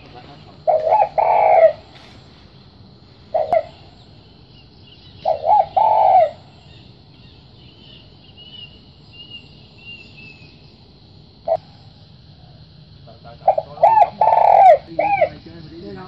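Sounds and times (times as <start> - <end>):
dove cooing: 0.0 - 2.1, 3.3 - 4.0, 5.2 - 6.9, 13.2 - 15.5
small bird chirping: 0.0 - 12.0.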